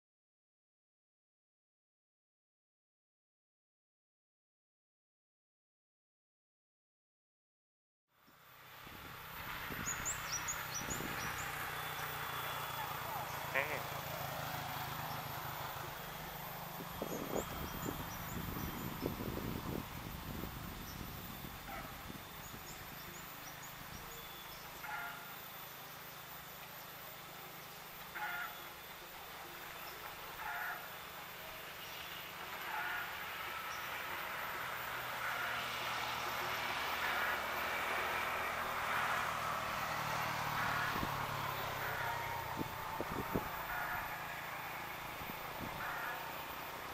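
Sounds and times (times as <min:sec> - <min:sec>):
distant diesel locomotive hum: 0:08.2 - 0:46.9
bird chirps: 0:22.4 - 0:26.0.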